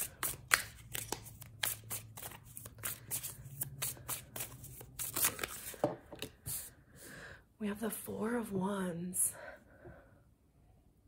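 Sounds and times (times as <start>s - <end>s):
cards being shuffled: 0.0s - 6.7s.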